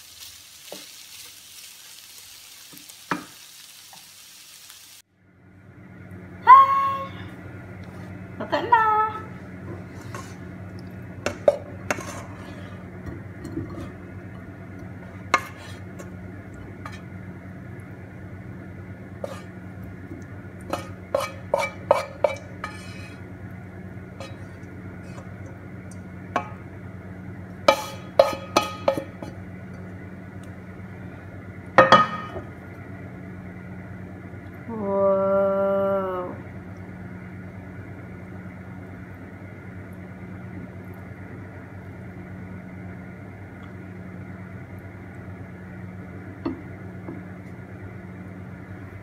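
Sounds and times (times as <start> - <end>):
low hum: 5.1 - 49.0
spatula scraping frying pan: 9.7 - 10.5, 11.2 - 14.0, 15.0 - 16.1, 16.7 - 17.1, 19.2 - 19.6, 20.6 - 23.2, 24.2 - 25.3, 27.7 - 29.4.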